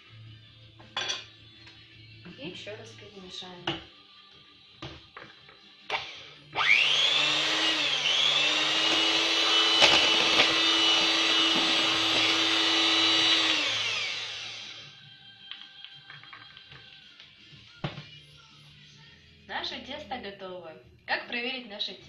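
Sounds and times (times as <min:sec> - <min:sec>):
electric mixer whining: 0:05.9 - 0:15.0.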